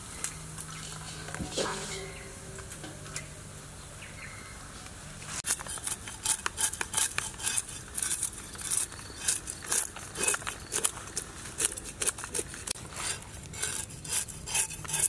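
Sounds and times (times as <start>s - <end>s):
knife scraping fish scales: 5.4s - 15.0s.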